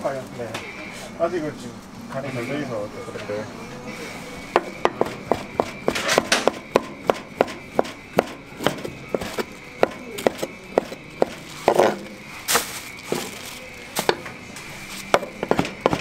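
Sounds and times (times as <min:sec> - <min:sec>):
knife chopping on wooden board: 0:04.6 - 0:12.0, 0:15.1 - 0:16.0.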